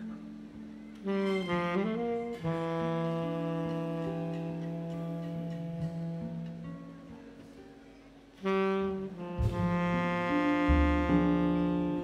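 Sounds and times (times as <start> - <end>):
saxophone note: 1.0 - 6.8, 8.4 - 12.0
low bass notes: 8.8 - 12.0
wind section chords: 9.0 - 12.0.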